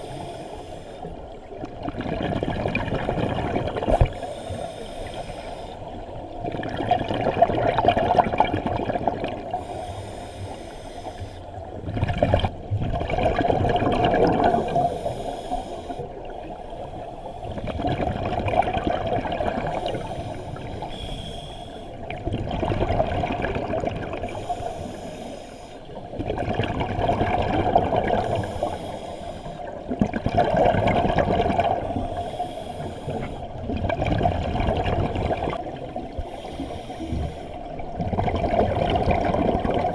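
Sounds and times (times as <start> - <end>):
regulator inhale hiss: 0.0 - 1.2, 4.0 - 5.9, 9.6 - 11.6, 14.5 - 17.6, 19.7 - 22.0, 24.2 - 26.0, 28.2 - 29.8, 32.0 - 33.6, 36.3 - 37.8
exhaust bubbles bursting: 12.0 - 14.6.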